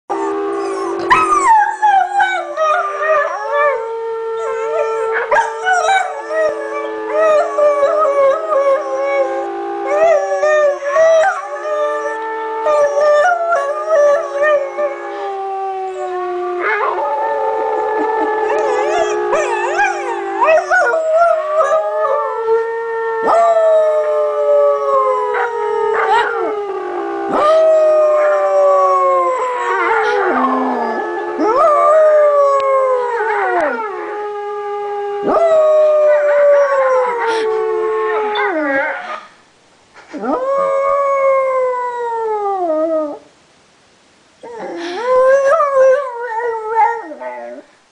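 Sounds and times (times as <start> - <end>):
dog howling: 0.1 - 34.1.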